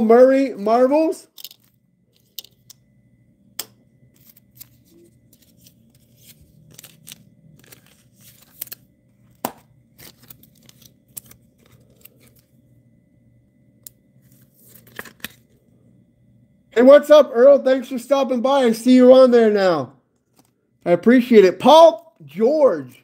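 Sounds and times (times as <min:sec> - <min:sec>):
plastic card sleeve crinkling: 0:04.2 - 0:12.6, 0:14.2 - 0:15.5.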